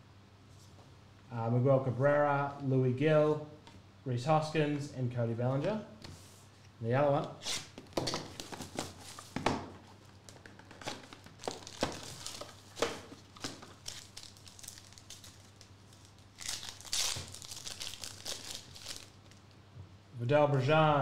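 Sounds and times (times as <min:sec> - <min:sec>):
foil wrapper crinkling: 0:10.3 - 0:19.4
foil wrapper ripping: 0:11.3 - 0:19.4.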